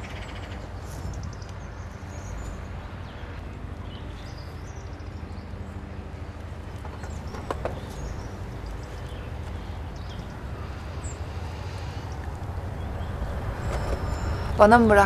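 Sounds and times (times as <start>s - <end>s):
steady low rumble: 0.0s - 15.0s
bird chirps: 7.0s - 15.0s.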